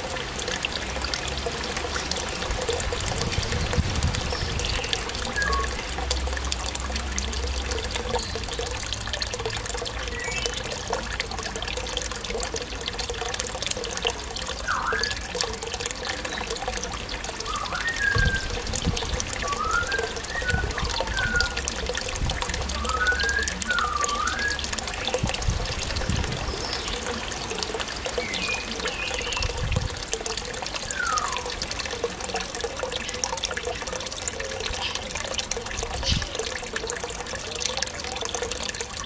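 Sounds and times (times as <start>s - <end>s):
water trickling: 0.0s - 39.0s
parrot whistling: 19.5s - 21.6s.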